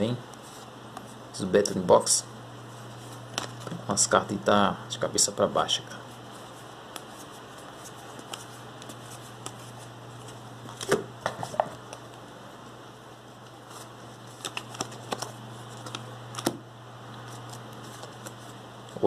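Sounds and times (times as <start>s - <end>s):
cards snapping and rustling: 3.2s - 3.8s, 6.9s - 11.0s, 13.7s - 16.6s, 17.2s - 18.5s.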